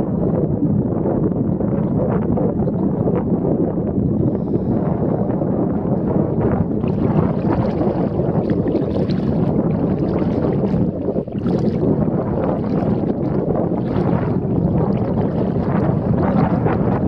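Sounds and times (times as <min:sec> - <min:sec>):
wind noise on microphone: 0:00.0 - 0:17.0
river water moving: 0:06.0 - 0:17.0.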